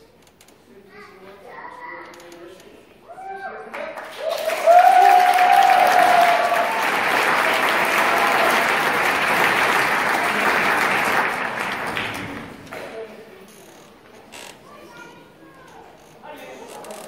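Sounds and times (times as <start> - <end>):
audience applauding and cheering: 3.3 - 12.8
person whooping: 4.2 - 6.8.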